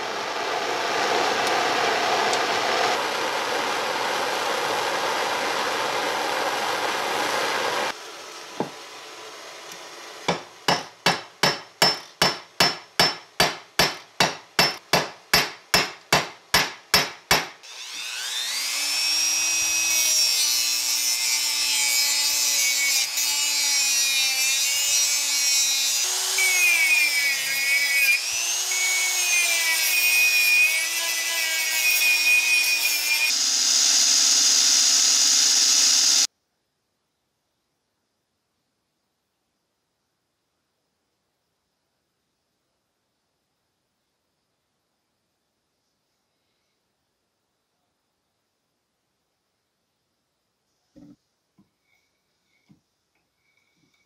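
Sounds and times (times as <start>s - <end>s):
sharp hammer strikes: 10.3s - 17.6s
drill boring through metal: 17.6s - 36.3s
torch hissing: 33.2s - 36.3s.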